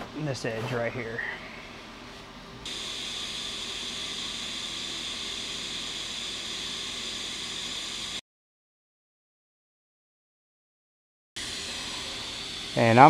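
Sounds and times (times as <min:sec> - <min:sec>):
welding arc hissing buzz: 0:02.6 - 0:08.2, 0:11.4 - 0:13.0.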